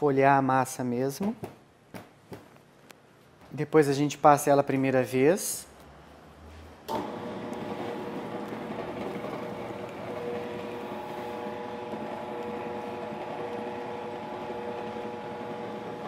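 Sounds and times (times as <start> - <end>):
dough sheeter motor hum: 6.9 - 16.0.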